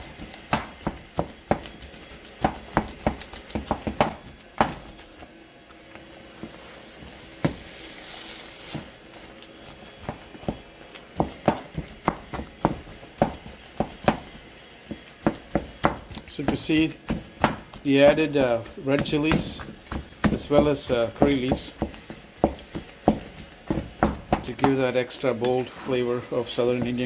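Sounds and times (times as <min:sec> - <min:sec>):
soft sizzle: 0:04.3 - 0:11.2, 0:24.8 - 0:27.0.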